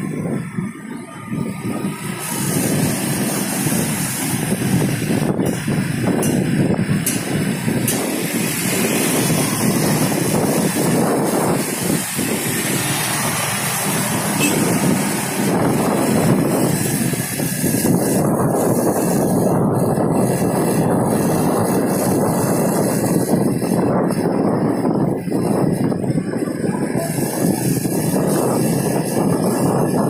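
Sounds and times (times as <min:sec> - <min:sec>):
cars and motorcycles passing: 0:00.0 - 0:30.0
engine and tyre rumble: 0:00.0 - 0:30.0.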